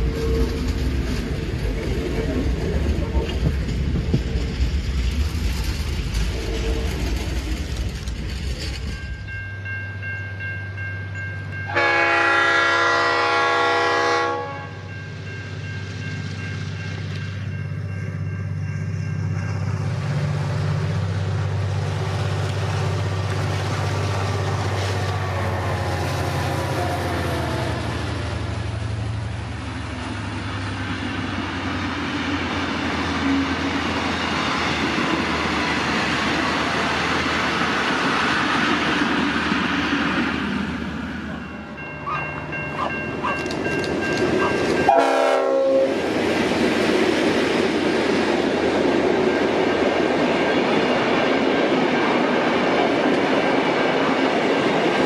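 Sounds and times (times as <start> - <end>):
locomotive engine droning: 0.0 - 55.0
train horn blast: 6.3 - 7.2, 11.7 - 14.9, 44.8 - 46.1.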